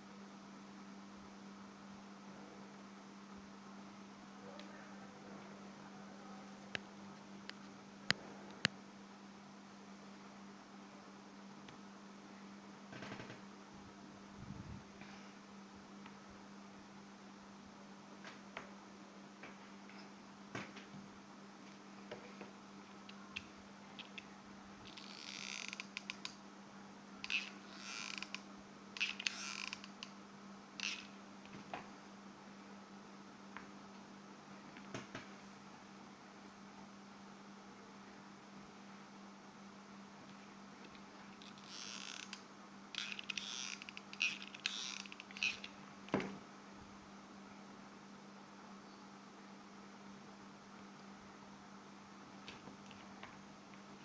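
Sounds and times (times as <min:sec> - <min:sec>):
faint low hum: 0:00.0 - 0:54.0
small clicks: 0:24.9 - 0:26.4, 0:29.0 - 0:30.2, 0:43.0 - 0:45.8.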